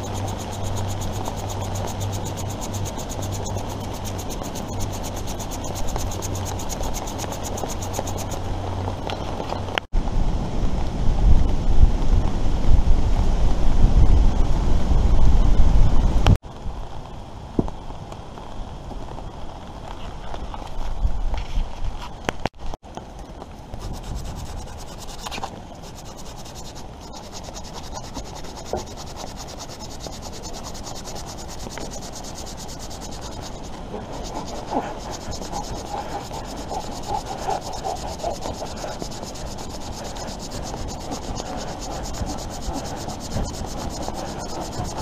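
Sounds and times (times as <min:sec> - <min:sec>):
knife shaving and scraping wood: 0:00.0 - 0:09.7, 0:23.7 - 0:45.0.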